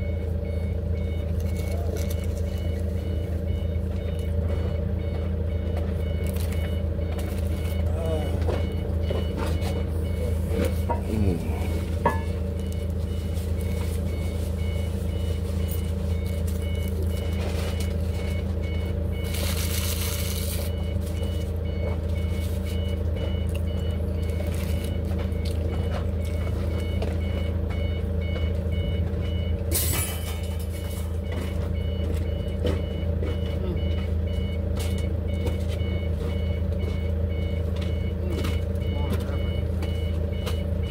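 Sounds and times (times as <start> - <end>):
backup alarm beeping: 0.0 - 40.9
low engine hum: 0.0 - 40.9.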